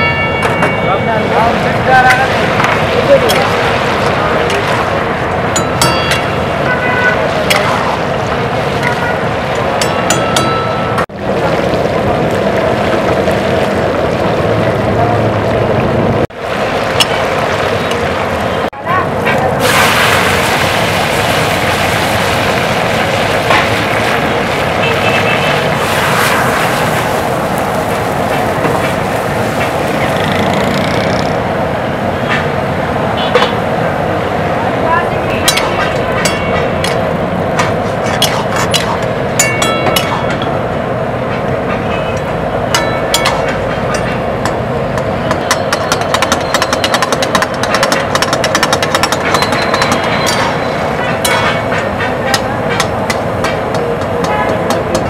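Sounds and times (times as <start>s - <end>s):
metal spatula clanking on wok: 5.6s - 6.5s, 35.4s - 40.5s, 42.7s - 44.6s, 45.2s - 55.0s
chicken and tomatoes sizzling: 19.6s - 29.7s
burner flame: 19.6s - 30.6s.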